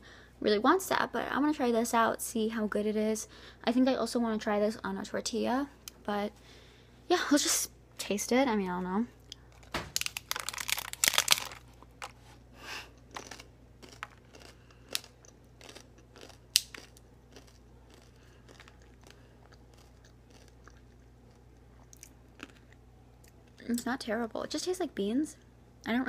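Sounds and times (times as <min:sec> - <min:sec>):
crunching taco shell: 0:09.3 - 0:12.2, 0:12.9 - 0:22.8.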